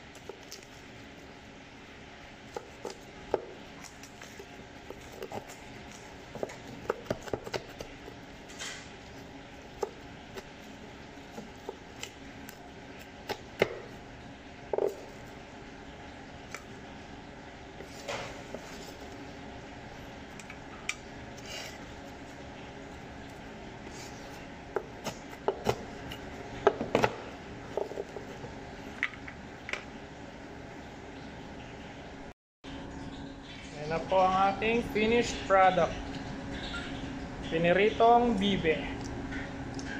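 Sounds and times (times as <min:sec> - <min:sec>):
knife chopping on plastic board: 0:06.4 - 0:08.0.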